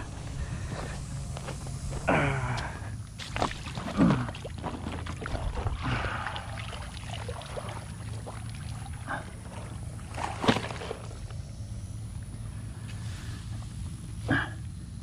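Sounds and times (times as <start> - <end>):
water splashing and dripping: 3.2 - 10.9.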